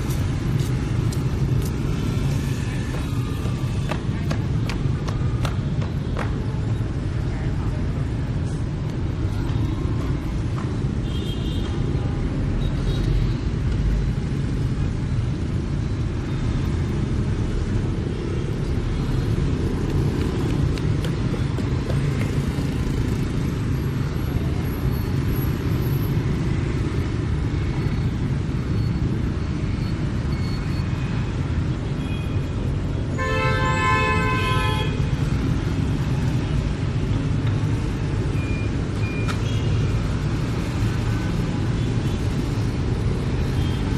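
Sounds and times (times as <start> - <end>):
motorbikes and cars passing: 0.0 - 43.9
vehicle horn sounding: 33.1 - 35.0.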